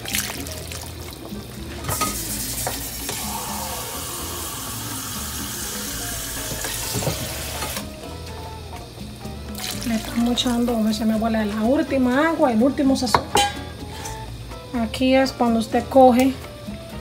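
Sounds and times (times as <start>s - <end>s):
water pouring into a pot: 0.0s - 8.0s, 9.5s - 11.2s.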